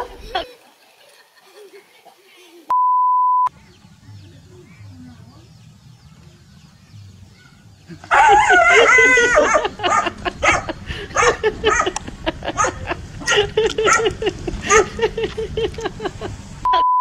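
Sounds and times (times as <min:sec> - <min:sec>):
test-tone beep: 0:02.7 - 0:03.5, 0:16.8 - 0:17.0
animal cries: 0:07.4 - 0:11.9.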